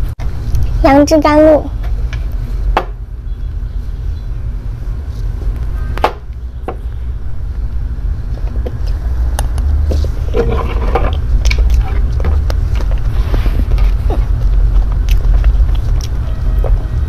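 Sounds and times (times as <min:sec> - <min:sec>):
steady low rumble: 0:00.0 - 0:17.0
eating mouth sounds: 0:11.1 - 0:17.0.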